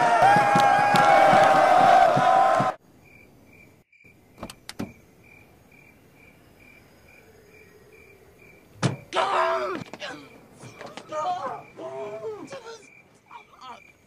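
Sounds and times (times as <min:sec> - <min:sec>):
crickets chirping: 0:02.8 - 0:14.0.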